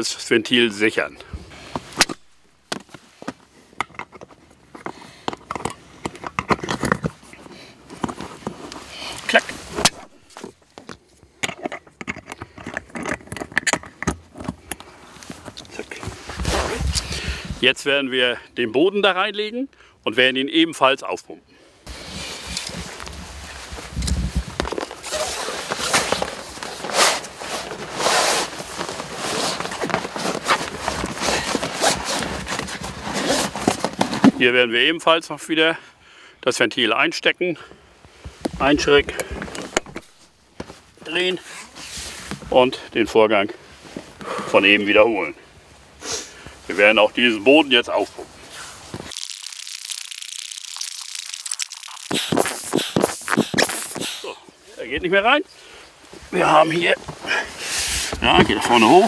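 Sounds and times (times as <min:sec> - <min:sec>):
rustling and scraping of inflatable kayak: 0:01.3 - 0:11.4, 0:14.2 - 0:17.6, 0:21.8 - 0:34.5, 0:38.0 - 0:42.7, 0:43.6 - 0:49.2, 0:50.6 - 0:59.0.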